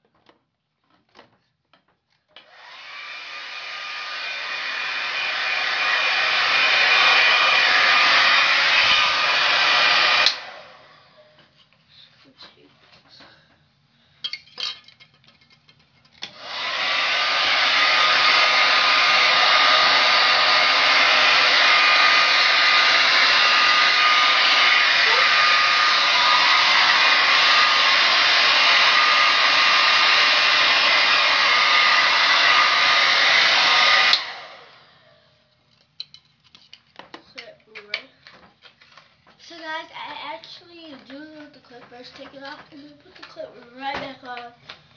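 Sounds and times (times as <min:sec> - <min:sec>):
hair dryer blowing: 0:02.3 - 0:11.5, 0:16.3 - 0:35.3, 0:39.5 - 0:44.9.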